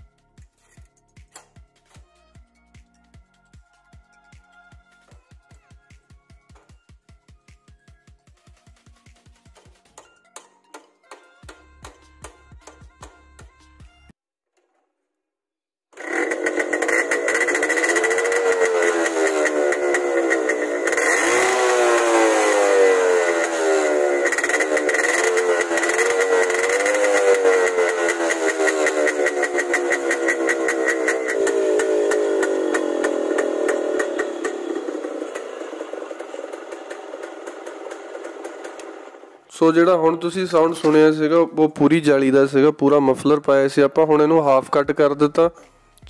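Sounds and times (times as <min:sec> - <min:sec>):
two-stroke motorcycle engine revving: 0:16.0 - 0:39.5.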